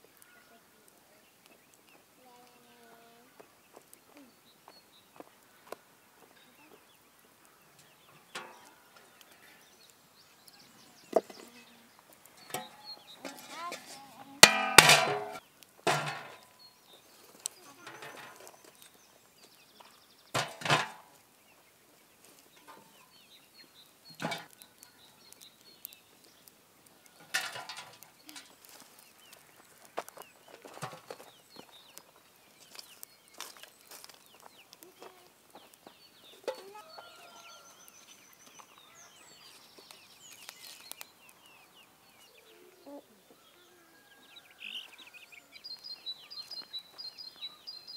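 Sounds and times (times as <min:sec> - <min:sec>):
faint small birds chirping: 0:00.0 - 0:47.9
chickens clucking: 0:41.7 - 0:45.5.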